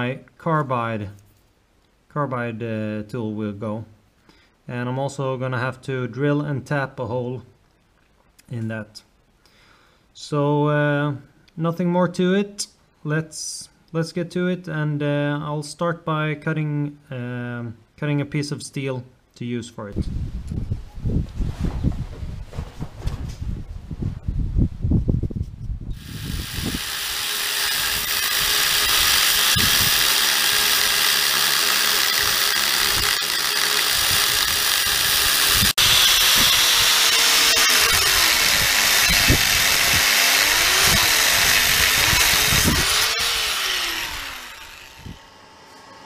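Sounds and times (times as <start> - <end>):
angle grinder cutting steel: 25.9 - 46.0.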